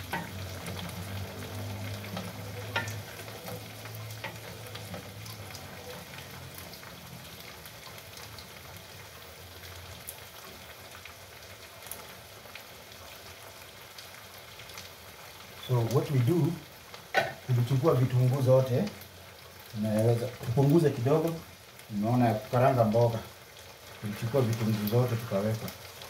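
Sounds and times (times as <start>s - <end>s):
food sizzling in a wok: 0.0s - 26.0s.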